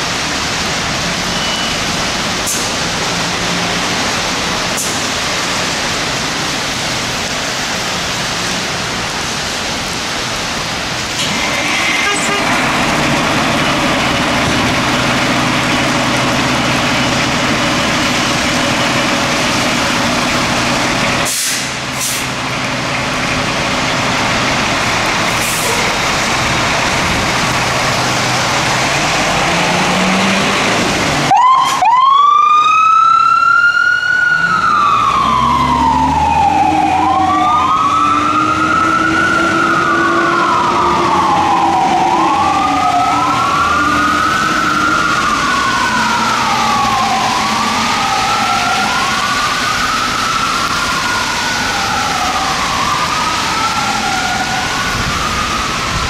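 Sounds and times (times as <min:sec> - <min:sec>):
fire engine running: 0:00.0 - 0:56.0
rain: 0:00.0 - 0:56.0
siren wailing: 0:28.0 - 0:56.0.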